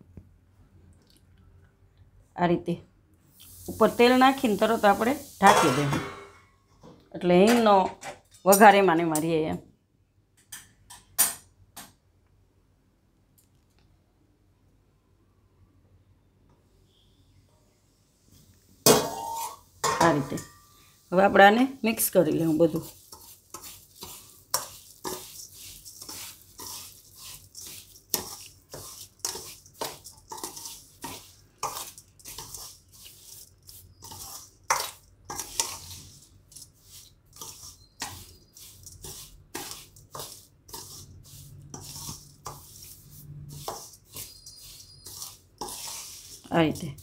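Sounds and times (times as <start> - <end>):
spoon scraping seeds in steel bowl: 3.4 - 5.9, 19.2 - 47.0.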